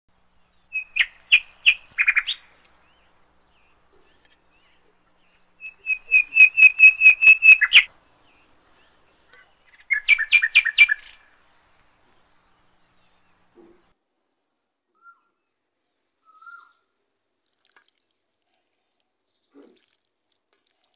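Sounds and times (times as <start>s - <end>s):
bird chirping: 0.1s - 13.9s, 14.9s - 16.9s.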